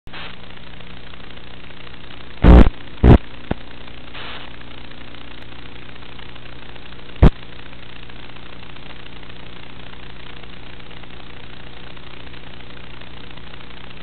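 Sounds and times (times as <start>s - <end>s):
electrical hum with buzz: 0.1s - 14.0s
loud static pops: 0.1s - 14.0s.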